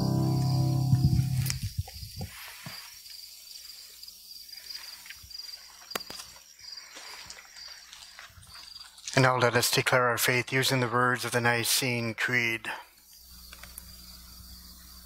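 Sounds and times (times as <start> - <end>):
crickets chirping: 0.0 - 9.2, 12.9 - 15.0.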